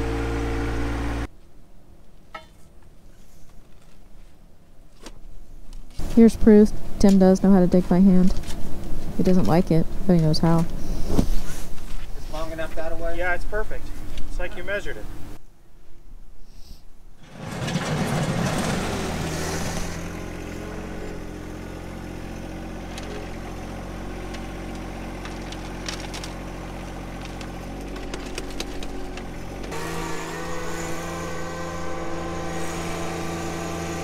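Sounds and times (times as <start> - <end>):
tractor diesel engine running: 0.0 - 1.3, 6.0 - 10.9, 17.2 - 34.0.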